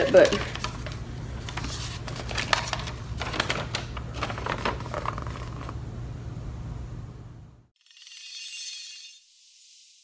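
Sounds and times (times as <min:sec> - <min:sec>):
paper crinkling and rustling: 0:00.0 - 0:05.8
steady low hum: 0:00.4 - 0:07.7.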